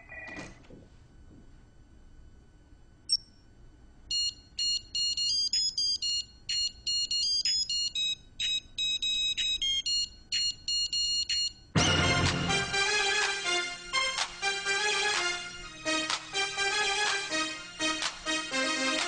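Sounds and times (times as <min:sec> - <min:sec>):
digital wristwatch beeping: 0:04.1 - 0:11.6
music track: 0:11.8 - 0:19.0.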